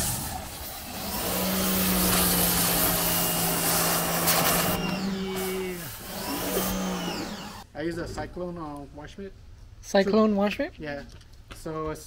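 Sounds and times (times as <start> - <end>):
pressure washer motor hum: 0.0 - 7.6
pressure washer water jet hissing: 0.0 - 7.6.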